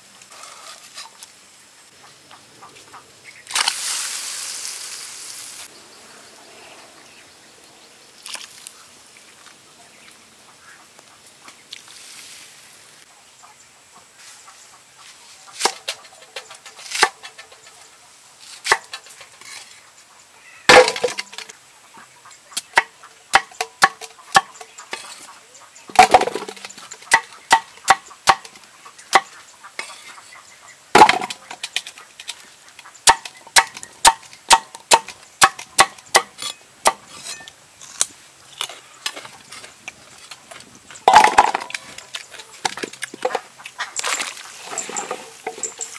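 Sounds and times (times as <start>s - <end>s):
vegetable chunks dropping into metal pot: 20.7s - 21.4s.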